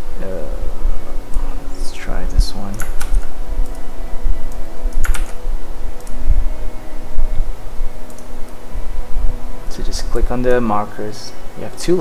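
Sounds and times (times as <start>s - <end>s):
faint hum: 0.0s - 12.0s
steady low rumble: 0.0s - 12.0s
computer keys and mouse clicking: 2.7s - 3.8s, 4.5s - 5.4s, 8.0s - 8.6s.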